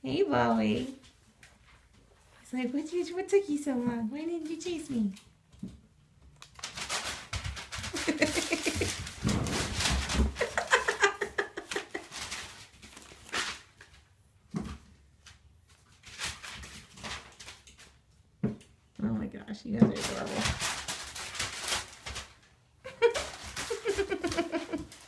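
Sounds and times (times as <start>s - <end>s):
newspaper rustling and crackling: 6.3s - 14.2s, 15.0s - 18.1s, 19.9s - 25.0s.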